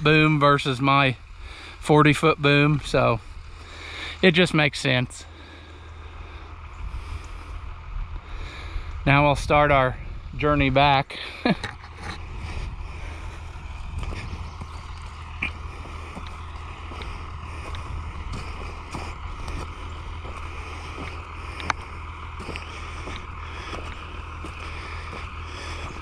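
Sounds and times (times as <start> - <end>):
tractor engine rumbling: 0.0 - 26.0
wind: 0.0 - 26.0.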